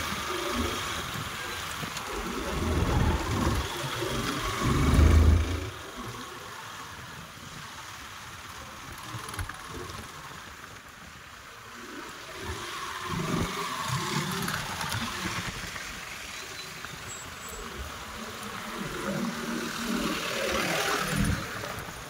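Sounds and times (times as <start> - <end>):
wind rumbling on microphone: 0.0 - 7.8.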